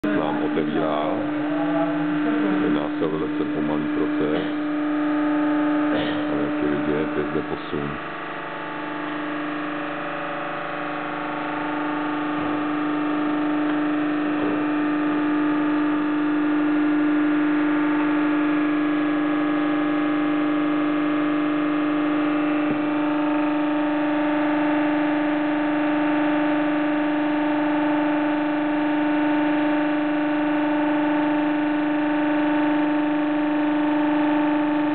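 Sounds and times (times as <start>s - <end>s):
hydraulic drive humming: 0.0s - 26.2s.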